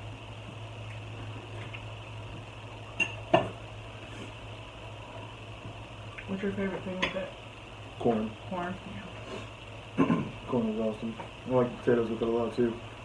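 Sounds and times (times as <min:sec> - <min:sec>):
steady low hum: 0:00.0 - 0:13.0
tableware clinking: 0:03.0 - 0:03.5
people talking: 0:06.3 - 0:07.3, 0:08.0 - 0:09.1, 0:10.5 - 0:12.8.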